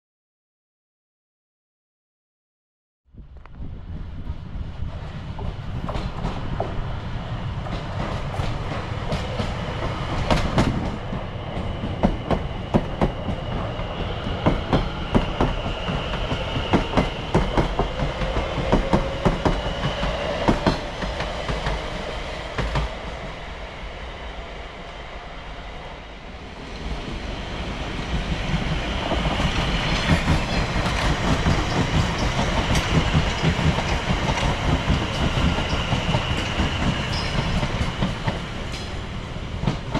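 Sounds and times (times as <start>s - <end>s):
train rail rumble: 3.2s - 39.9s
wheels clacking over rail joints: 29.0s - 38.9s.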